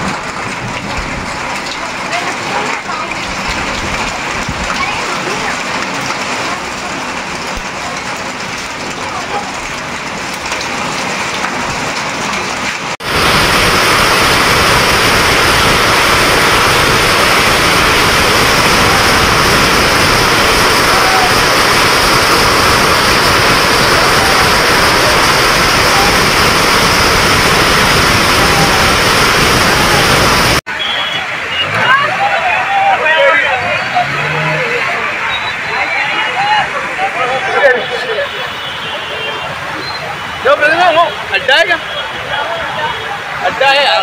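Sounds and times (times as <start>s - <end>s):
heavy rain and hail: 0.0s - 44.0s.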